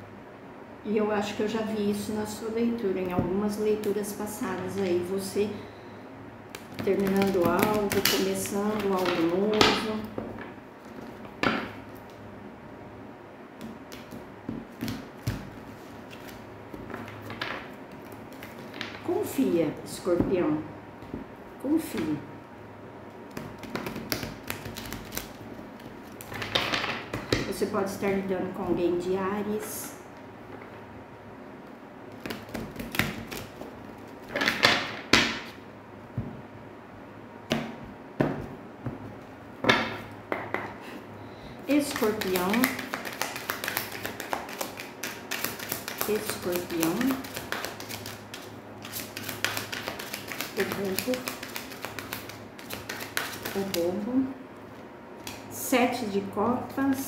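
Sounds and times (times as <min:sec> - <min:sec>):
cards clicking and tapping on table: 0:41.8 - 0:53.8.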